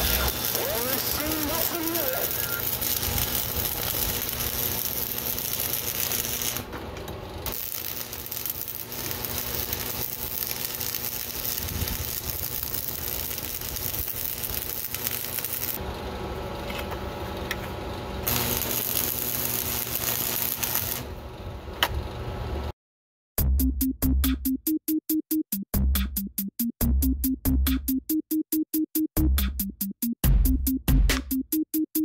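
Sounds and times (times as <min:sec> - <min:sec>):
welding arc crackling: 0:00.0 - 0:21.7.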